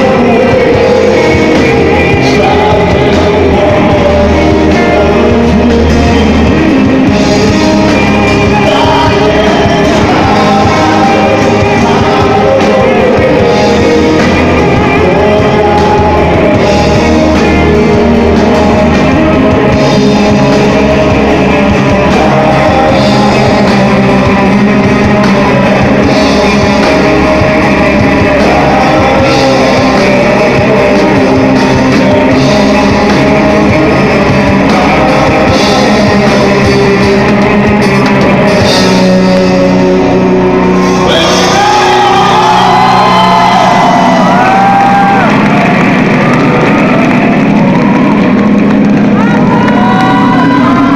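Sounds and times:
man singing: 0.0 - 48.2, 49.1 - 50.9
rock band playing: 0.0 - 50.9.

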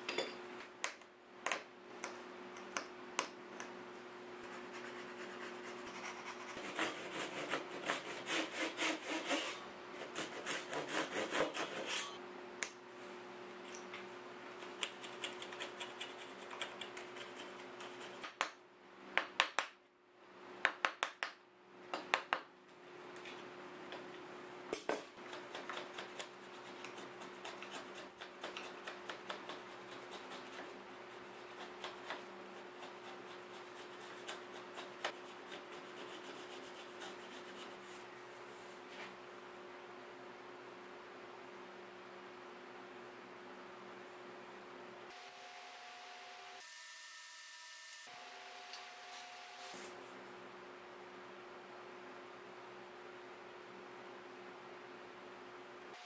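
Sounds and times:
hand saw cutting wood: 6.6 - 12.2.

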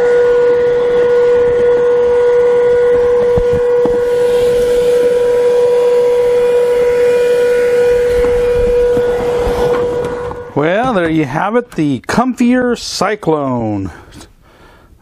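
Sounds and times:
vacuum cleaner motor whine: 0.0 - 11.1.

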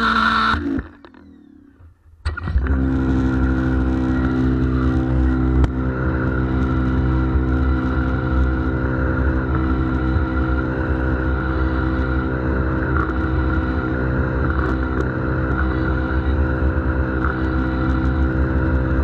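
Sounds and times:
pressure washer motor and pump: 0.0 - 19.0.

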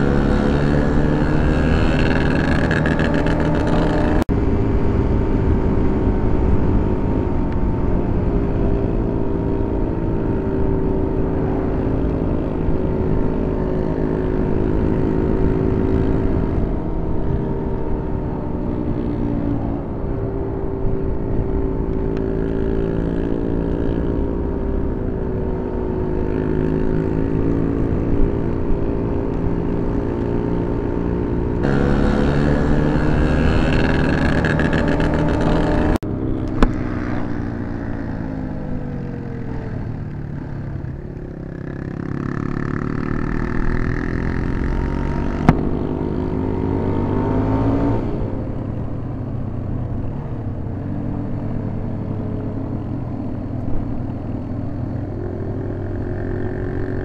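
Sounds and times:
wind noise: 0.0 - 40.0
motorcycle engine running: 0.0 - 57.0.

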